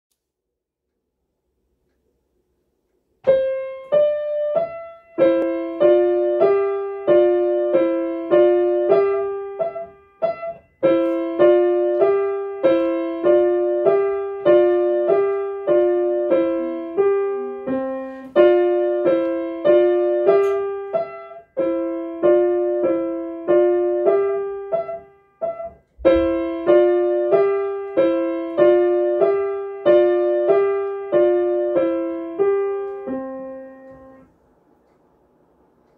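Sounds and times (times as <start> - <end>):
grand piano playing tune: 3.2 - 34.3.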